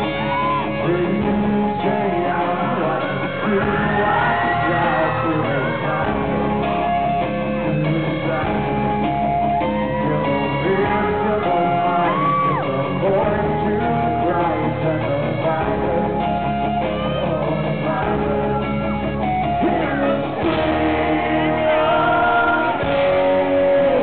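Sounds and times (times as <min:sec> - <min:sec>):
electric guitar: 0:00.0 - 0:24.0
live rock band playing: 0:00.0 - 0:24.0
man singing lead vocal: 0:00.0 - 0:24.0.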